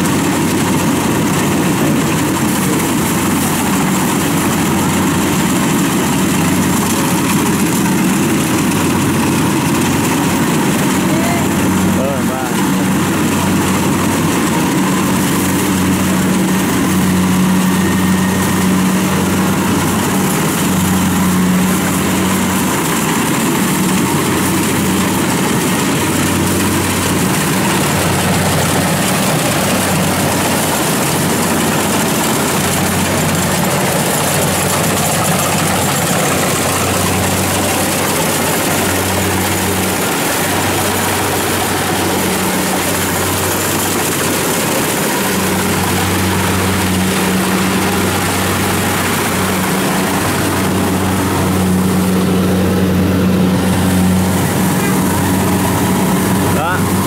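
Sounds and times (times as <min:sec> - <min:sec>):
combine harvester droning: 0:00.0 - 0:57.0.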